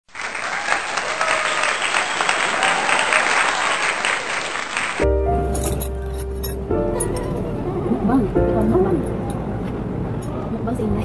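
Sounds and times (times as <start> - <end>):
applause: 0.0 - 5.1.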